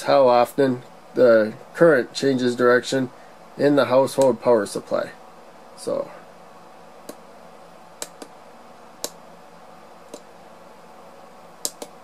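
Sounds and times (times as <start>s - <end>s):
low background hum: 0.0s - 12.0s
push buttons clicking: 11.6s - 12.0s.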